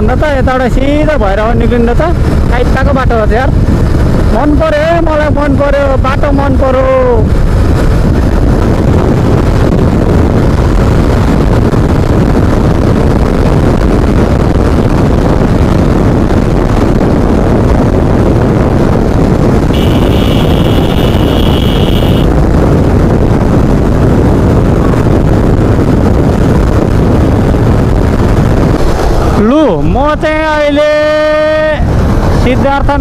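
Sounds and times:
wind noise on microphone: 0.0s - 33.0s
motorcycle engine: 7.0s - 30.4s.

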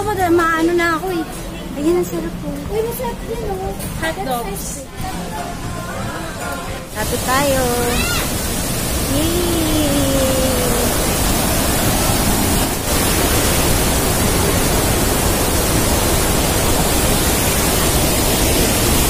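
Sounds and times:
waterfall roaring: 6.4s - 19.0s.

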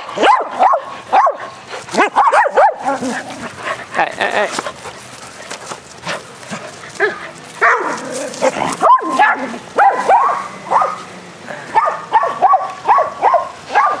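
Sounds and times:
dogs barking: 0.0s - 14.0s.

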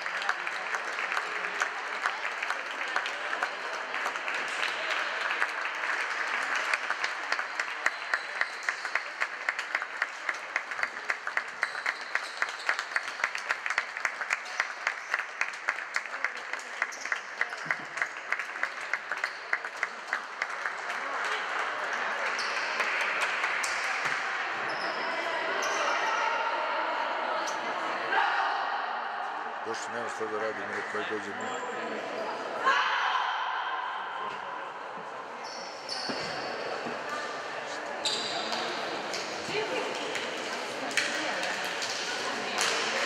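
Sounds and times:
rhythmic clapping: 0.0s - 24.1s, 39.1s - 43.0s
murmur of voices: 19.9s - 43.0s.

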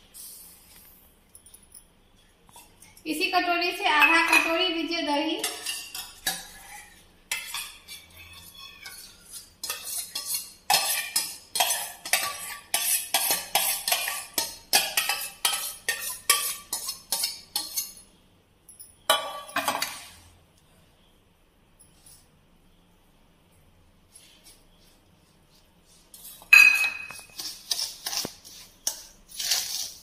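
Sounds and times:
steel spoon clinking on bowls: 4.0s - 4.6s, 5.4s - 18.1s, 26.4s - 30.0s.

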